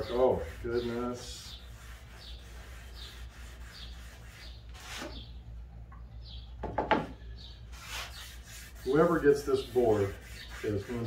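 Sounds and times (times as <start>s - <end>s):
cloth rag rubbing wood: 0.0s - 5.2s, 7.7s - 11.0s.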